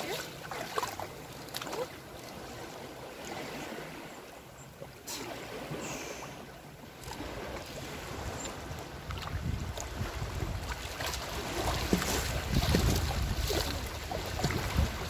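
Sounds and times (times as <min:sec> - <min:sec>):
seawater lapping on pebble shore: 0:00.0 - 0:15.0
wind rumble on microphone: 0:07.2 - 0:15.0.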